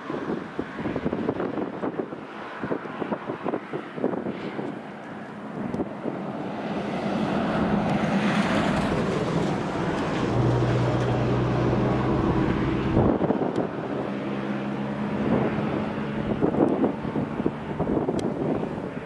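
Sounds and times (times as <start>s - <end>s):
wind on microphone: 0.0s - 19.0s
low engine hum: 4.3s - 19.0s
vehicle passing: 5.4s - 19.0s.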